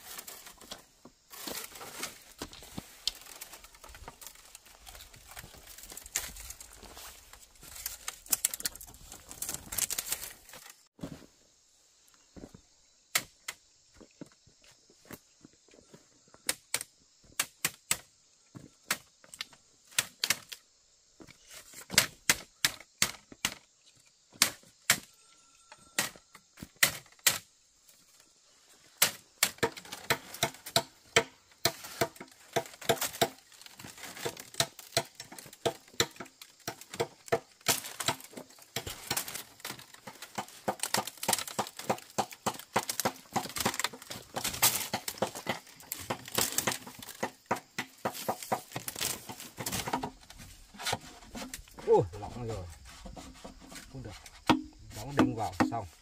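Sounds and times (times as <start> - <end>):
bamboo knocks and taps: 34.2 - 51.9, 52.9 - 55.8.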